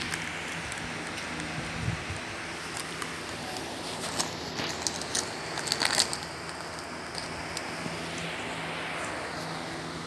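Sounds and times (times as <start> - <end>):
dog chewing plastic wrapper: 2.6 - 7.7.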